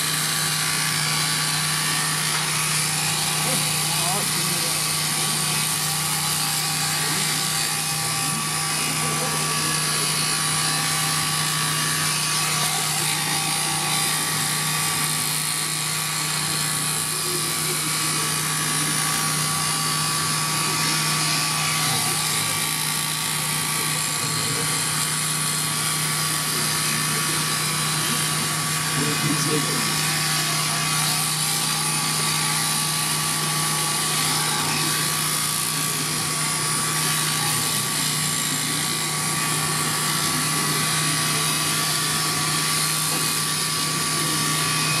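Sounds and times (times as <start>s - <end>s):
electric shears humming and whining: 0.0s - 45.0s.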